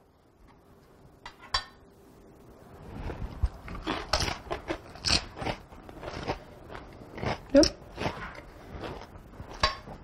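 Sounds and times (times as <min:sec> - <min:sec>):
tortilla chips crunching: 0:03.6 - 0:10.0.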